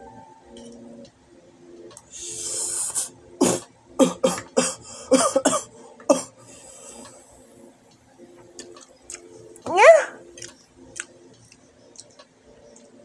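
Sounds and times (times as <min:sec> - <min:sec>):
young man coughing: 0:03.4 - 0:06.4.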